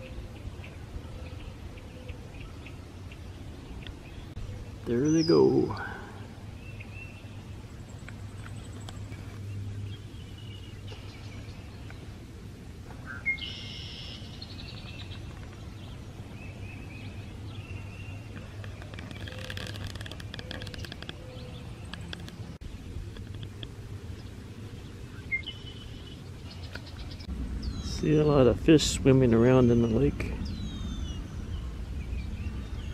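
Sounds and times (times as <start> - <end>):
bird trilled song: 13.0 - 28.1, 29.4 - 32.9.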